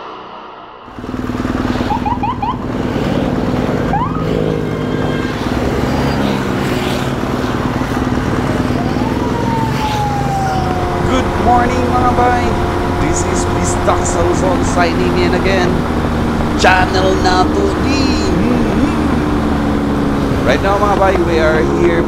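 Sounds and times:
long falling tone: 0.0 - 2.8, 8.6 - 15.5
motorcycle engine running: 0.9 - 22.0.

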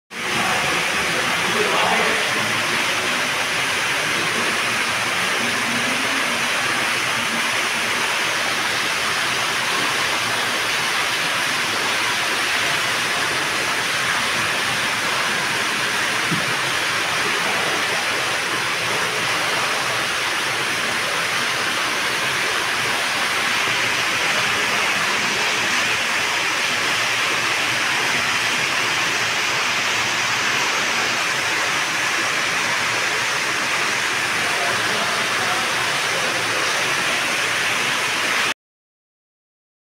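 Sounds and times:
waterfall splashing into pool: 0.1 - 38.6.

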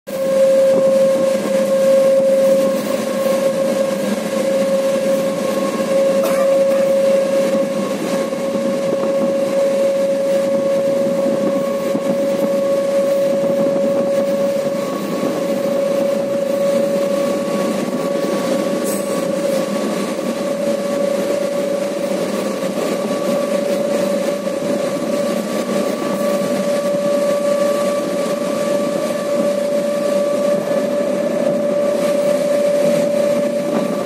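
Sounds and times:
constant whine: 0.1 - 34.0
train wheels rushing on rail: 0.1 - 34.0.

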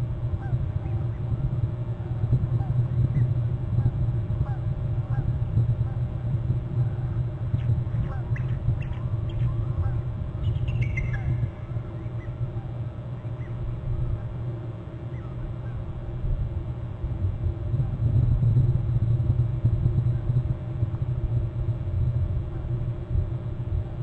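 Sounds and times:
low rumble: 15.5 - 24.0.

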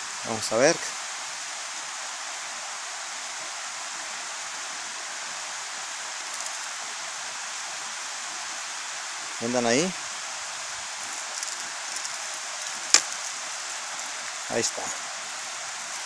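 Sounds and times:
flowing water rushing: 0.0 - 16.0
faint rattle: 6.2 - 6.8, 11.0 - 14.2.

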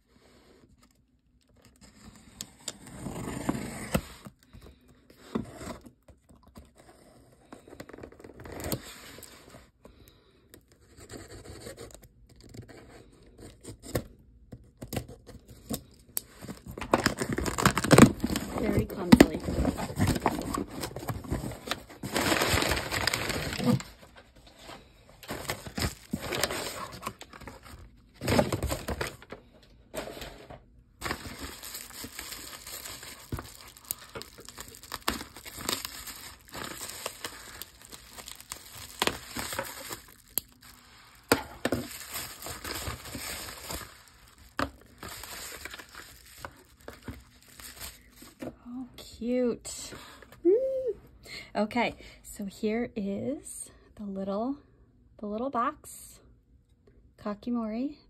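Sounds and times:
cardboard scraping: 1.8 - 4.3, 16.4 - 29.2
bubble wrap crackling: 16.3 - 24.3, 25.2 - 29.3, 31.0 - 48.4
packing paper crinkling: 16.3 - 30.2, 31.0 - 48.4.

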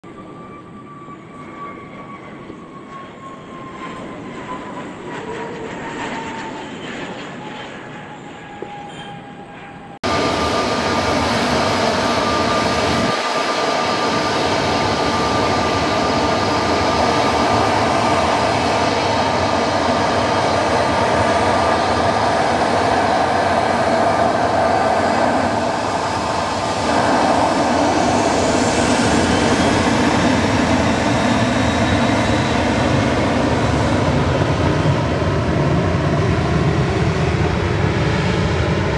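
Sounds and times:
jet engines close by: 0.0 - 38.9
high engine whine: 0.1 - 38.9
jet aircraft passing: 0.1 - 38.9.

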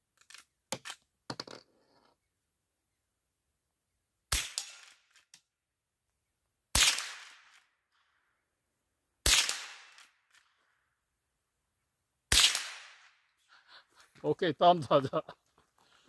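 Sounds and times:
rifle shots: 4.3 - 5.0, 6.7 - 7.6, 9.2 - 10.2, 12.3 - 13.2.

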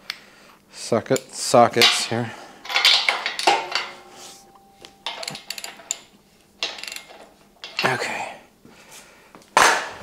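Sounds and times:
ratchet clicking on bolt: 5.1 - 6.0, 6.6 - 7.8.

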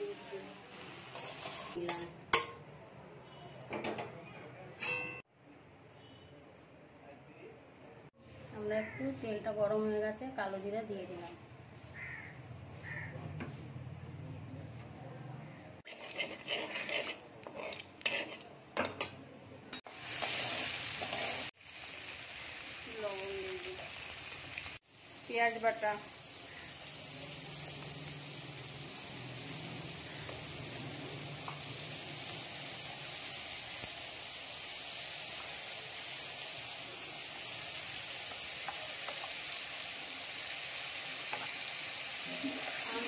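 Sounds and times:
food sizzling in hot oil: 0.0 - 2.6, 15.8 - 19.0, 19.8 - 43.0
metal spatula scraping pan: 1.1 - 2.5, 15.9 - 19.1, 20.2 - 21.5
clinks against pan: 1.1 - 2.7, 4.8 - 5.2
sharp metal clank: 4.8 - 5.2.

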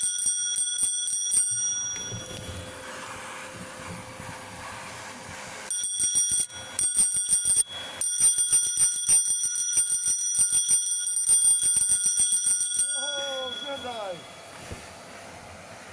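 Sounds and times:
bicycle bell trill: 0.0 - 2.7, 5.7 - 14.5
wind: 0.0 - 15.9.

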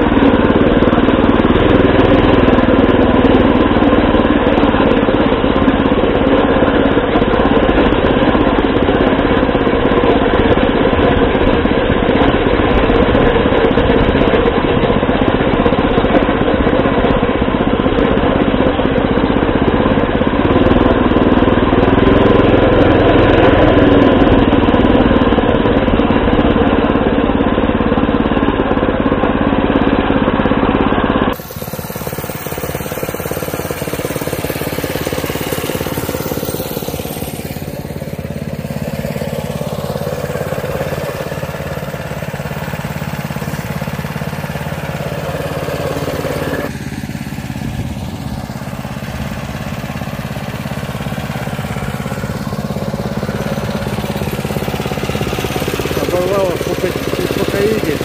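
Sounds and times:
small motorcycle engine running: 0.0 - 58.0.

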